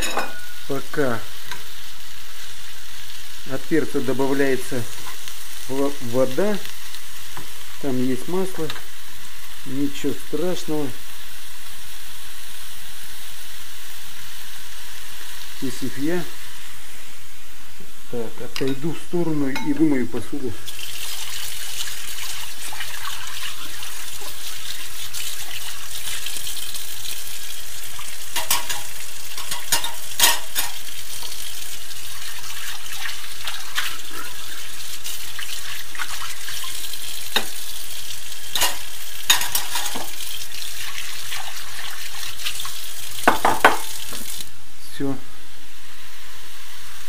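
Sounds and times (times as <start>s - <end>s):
crockery clinking: 0.0s - 0.6s, 19.5s - 19.8s, 28.4s - 30.8s.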